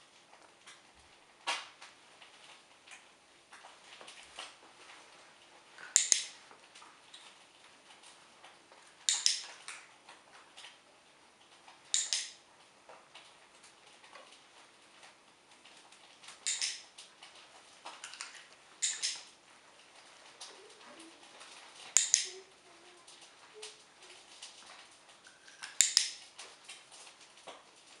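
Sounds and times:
training clicker double clicks: 11.9s - 12.4s, 16.4s - 16.8s, 18.8s - 19.2s, 22.0s - 22.3s.

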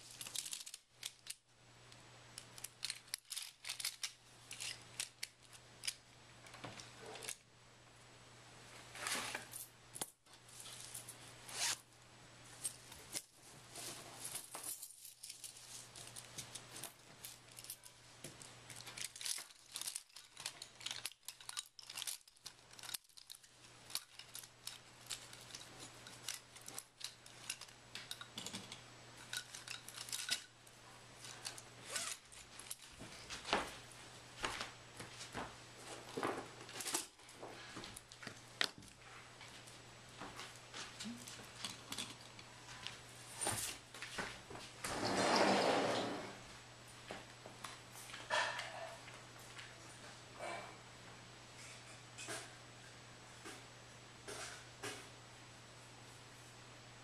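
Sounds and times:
small objects clicking and scraping: 0.0s - 1.4s, 2.3s - 7.4s, 12.6s - 33.4s.

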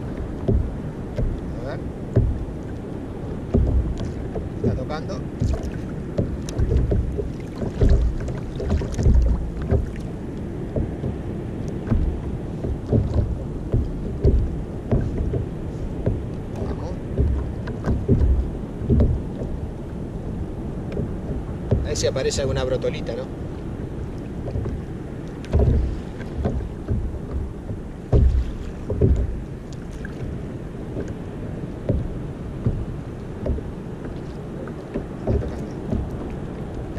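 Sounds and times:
water lapping against hull: 0.0s - 36.9s
wind noise on microphone: 0.0s - 36.9s
light ticks: 3.5s - 4.7s.

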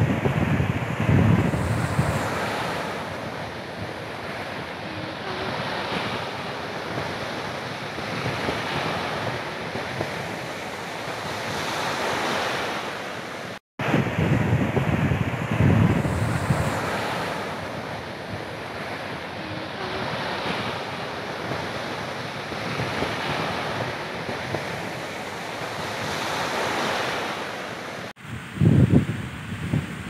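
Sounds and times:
sea waves breaking on beach: 0.0s - 30.0s
wind buffeting microphone: 0.0s - 30.0s.

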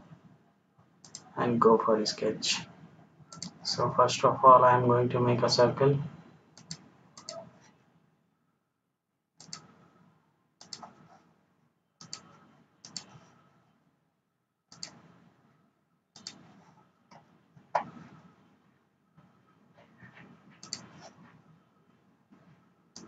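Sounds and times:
faint mouse clicks: 1.0s - 1.3s, 3.3s - 3.6s, 6.6s - 7.5s, 9.4s - 9.8s, 10.6s - 11.1s, 12.0s - 13.3s, 14.7s - 15.0s, 16.2s - 16.5s, 20.6s - 21.2s.

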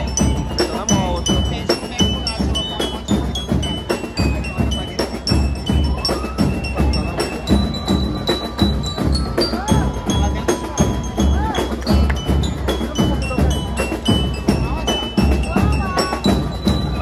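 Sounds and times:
bass drum: 0.0s - 17.0s
bell lyres melody: 0.0s - 17.0s
cymbals: 0.0s - 17.0s
snare drums: 0.0s - 17.0s.

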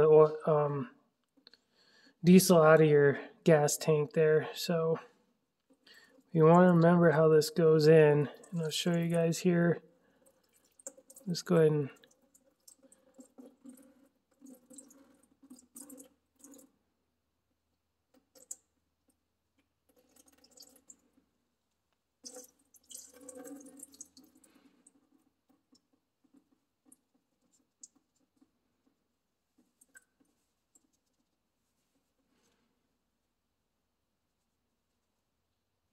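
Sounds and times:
soft rustles: 27.4s - 33.0s.

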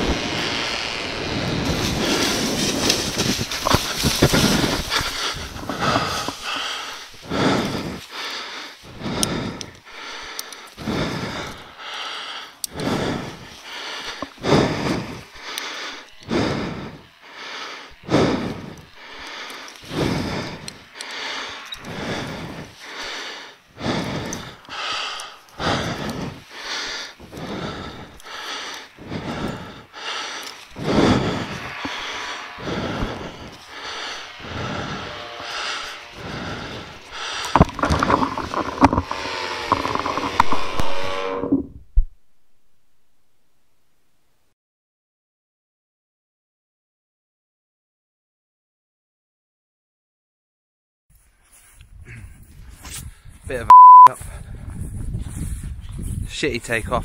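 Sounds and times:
wind noise: 0.0s - 8.0s, 51.7s - 57.0s
paramotor engine: 0.0s - 41.6s
person panting heavily: 1.7s - 40.7s, 51.5s - 56.3s.

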